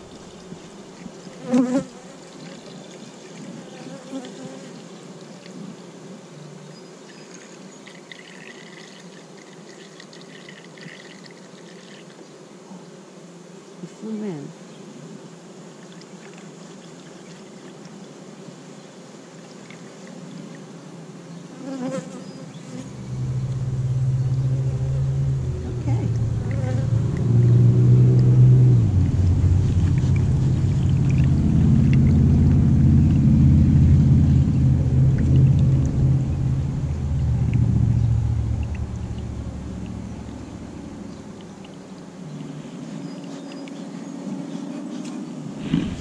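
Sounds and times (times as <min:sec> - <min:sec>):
bees buzzing: 0:00.0 - 0:02.8, 0:21.5 - 0:42.2
low rumble: 0:22.8 - 0:41.7, 0:45.6 - 0:46.0.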